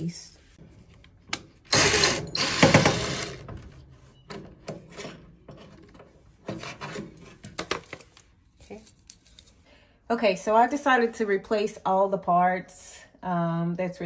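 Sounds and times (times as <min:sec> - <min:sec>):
cordless drill running: 0:01.7 - 0:03.4.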